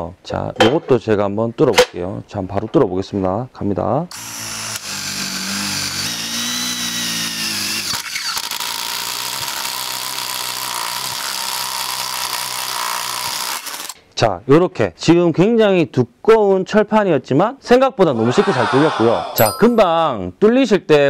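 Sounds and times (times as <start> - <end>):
impact driver drilling steel: 4.2 - 14.0.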